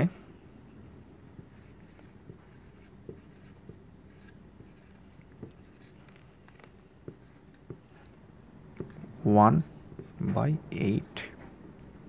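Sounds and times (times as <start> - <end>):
marker pen scratching: 1.4 - 8.1, 8.8 - 11.2.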